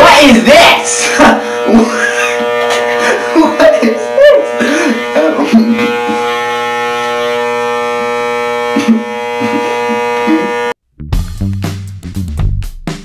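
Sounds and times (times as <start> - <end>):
person speaking: 0.0 - 1.9
electric hair clippers buzzing: 0.0 - 10.8.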